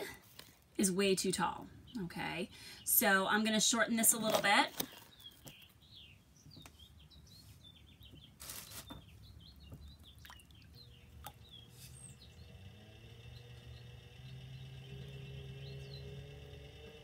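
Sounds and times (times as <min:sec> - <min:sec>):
pottery wheel motor humming: 0:09.3 - 0:17.0.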